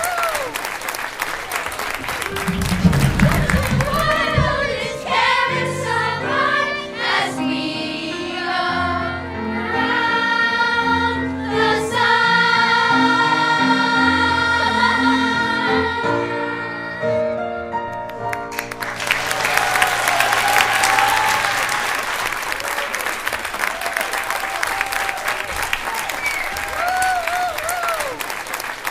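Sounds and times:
audience applause: 0.0 - 5.0, 18.2 - 28.9
musical accompaniment: 1.3 - 22.5
children's choir singing: 2.2 - 17.5.

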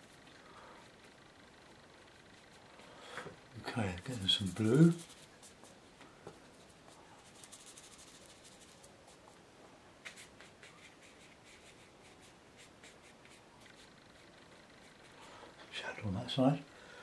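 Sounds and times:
paintbrush scratching on paper: 3.6 - 5.8, 6.5 - 9.4, 10.0 - 15.3.

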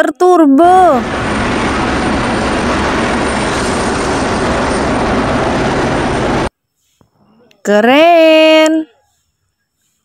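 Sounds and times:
helicopter turbine and rotor: 0.7 - 6.5.

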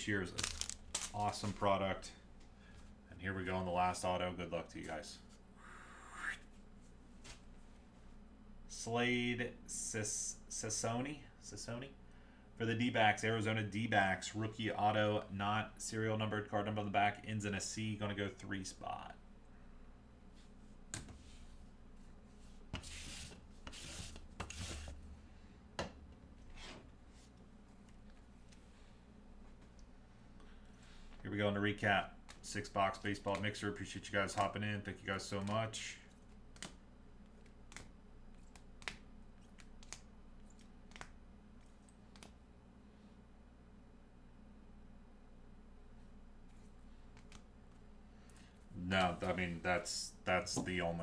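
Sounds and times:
faint low hum: 0.0 - 51.0
plastic sleeves rubbing and sliding: 0.4 - 1.6
plastic card sleeves clicking: 37.4 - 40.1, 40.9 - 41.1.

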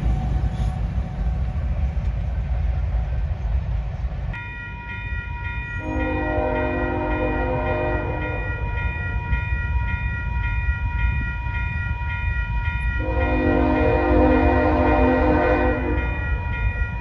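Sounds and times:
crossing signal bell ringing: 4.3 - 17.0
locomotive horn: 5.8 - 8.6, 13.0 - 16.2.

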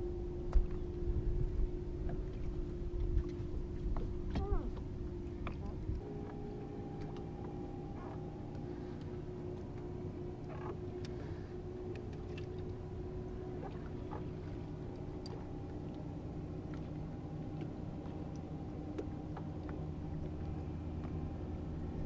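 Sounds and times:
electric boat motor humming: 0.0 - 22.0
faint clicks: 10.5 - 11.2.

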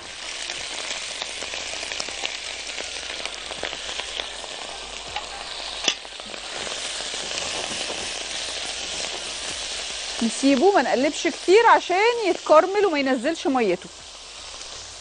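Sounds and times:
sausage sizzling in hot oil: 0.0 - 15.0
spatula stirring in a wok: 0.0 - 15.0.

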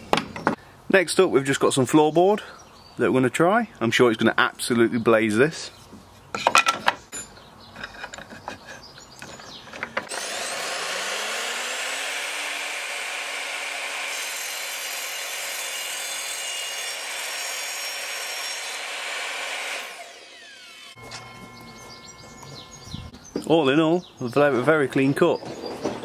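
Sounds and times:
saw motor winding down whine: 10.1 - 14.6, 19.6 - 22.9
mitre saw cutting wood: 10.1 - 21.2.

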